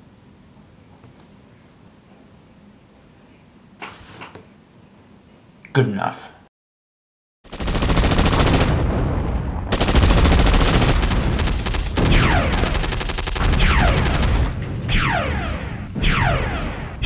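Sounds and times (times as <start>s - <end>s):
machine-gun fire: 7.5s - 17.0s
zaps sweeping down in pitch: 11.6s - 17.0s.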